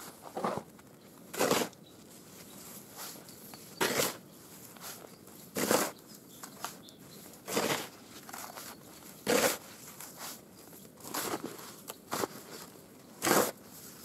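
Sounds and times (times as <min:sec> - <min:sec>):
shovel scraping snow: 0:01.3 - 0:01.8, 0:02.4 - 0:06.0, 0:07.4 - 0:10.4, 0:11.0 - 0:14.0.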